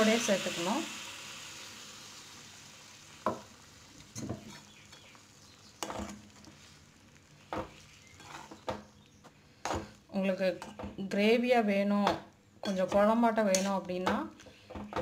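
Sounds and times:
soft sizzle: 0.0 - 15.0
metal spoon scraping pan: 7.6 - 8.7, 12.6 - 13.9.

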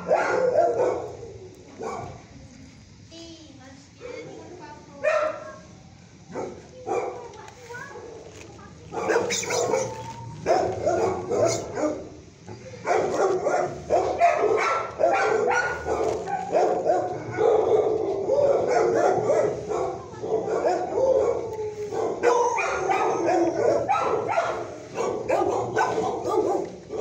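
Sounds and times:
dogs barking and howling: 0.0 - 2.2, 8.9 - 27.0.

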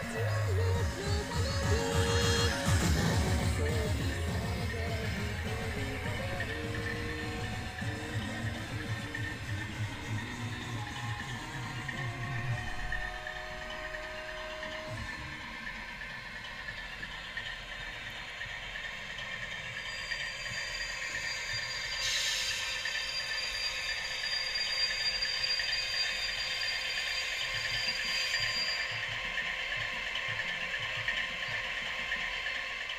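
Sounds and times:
thin high whine: 0.0 - 29.8
model train clattering on rails: 24.6 - 32.9.

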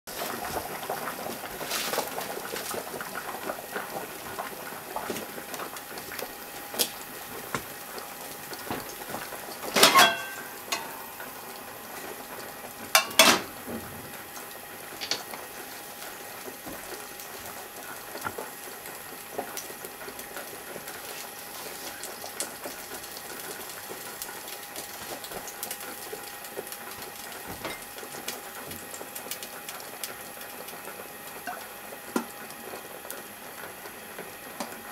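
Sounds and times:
gas burner hissing: 0.1 - 34.9
pan knocks and clinks: 9.8 - 10.9, 13.0 - 13.5.

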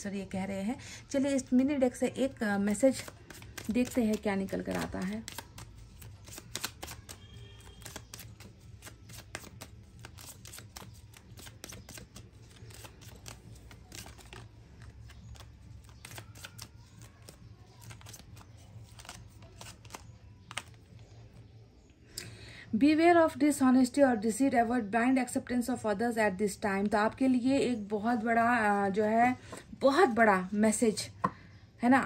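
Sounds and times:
cards being shuffled: 2.6 - 21.2.

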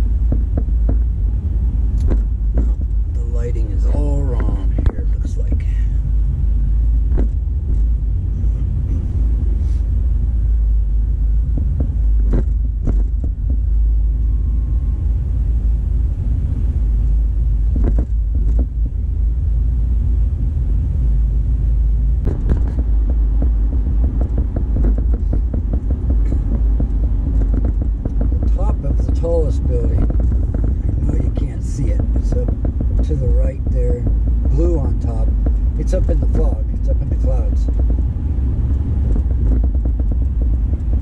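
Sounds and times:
car engine and tyres rumbling: 0.0 - 41.0
brief knocks: 11.5 - 13.6, 17.7 - 19.0, 22.2 - 29.2.

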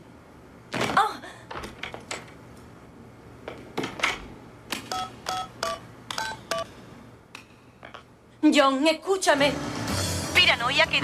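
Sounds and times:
phone keypad dialing beeps: 4.9 - 6.7.

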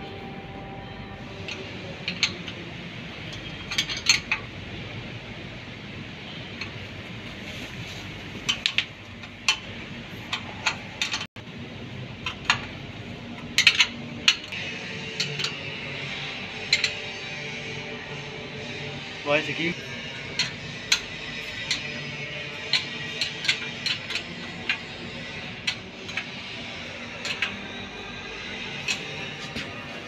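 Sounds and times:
spanner clinking on bolts: 1.4 - 2.7, 3.3 - 4.5, 13.4 - 17.2, 19.7 - 30.0.

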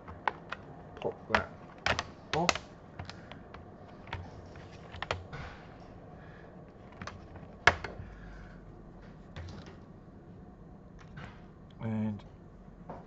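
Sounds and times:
plastic clips snapping loose: 0.0 - 3.5.

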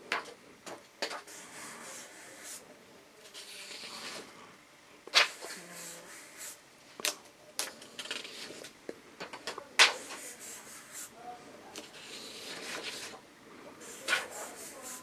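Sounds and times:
marker scratching on paper: 1.0 - 2.6, 3.2 - 4.3, 5.1 - 6.6, 7.8 - 8.7, 9.8 - 11.2, 11.8 - 13.2, 13.8 - 15.0.

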